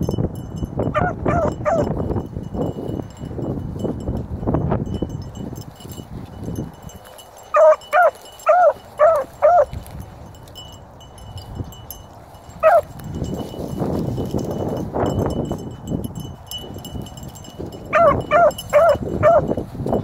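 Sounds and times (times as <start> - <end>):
puppy baying: 1.0 - 1.9, 7.5 - 9.8, 12.6 - 12.9, 17.9 - 19.5.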